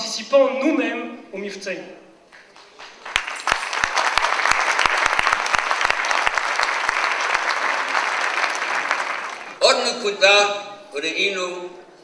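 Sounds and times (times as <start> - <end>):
audience applauding: 2.4 - 9.6.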